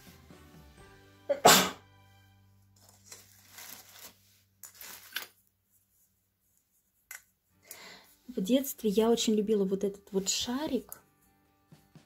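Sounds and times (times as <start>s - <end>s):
soft background music: 0.0s - 12.0s
person sneezing: 1.3s - 1.8s
ornaments and tinsel rustling: 2.6s - 7.1s.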